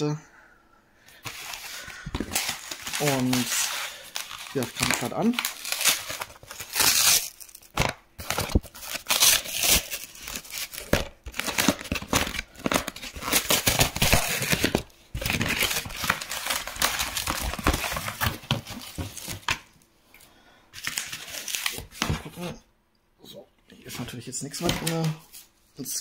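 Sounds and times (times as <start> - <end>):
packaging torn open and crumpled: 1.2 - 19.6, 20.8 - 22.4.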